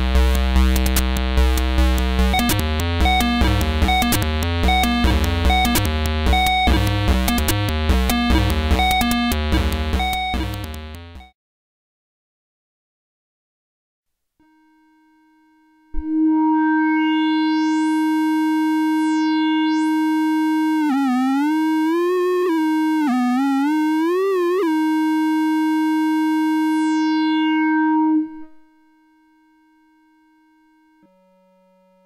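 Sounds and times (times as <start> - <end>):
buzzy synth note: 0.0 - 11.2, 16.0 - 29.0.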